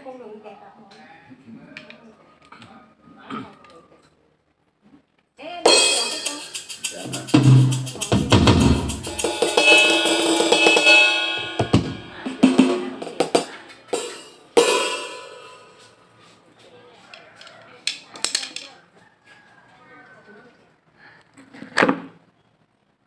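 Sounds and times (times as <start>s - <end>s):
electronic drum pad hits: 5.7s - 15.9s
deep bass drum hit: 7.2s - 9.3s.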